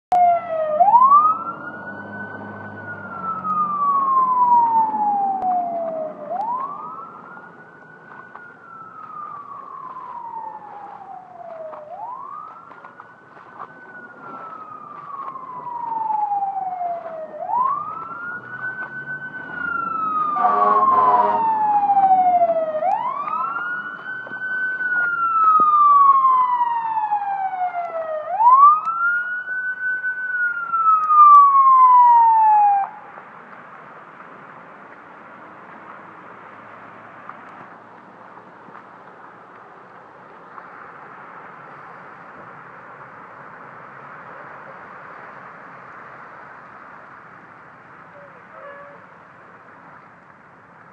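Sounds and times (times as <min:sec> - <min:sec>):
fire truck siren wailing: 0:00.1 - 0:34.1, 0:47.8 - 0:49.2
horn blast: 0:20.3 - 0:21.6, 0:48.2 - 0:49.0.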